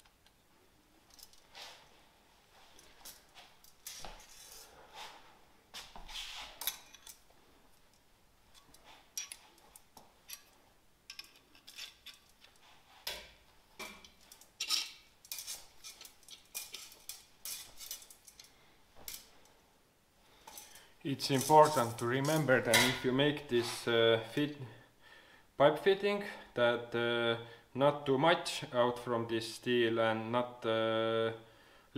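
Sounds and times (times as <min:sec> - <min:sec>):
metallic tool clicks and scrapes: 0:14.0 - 0:18.5.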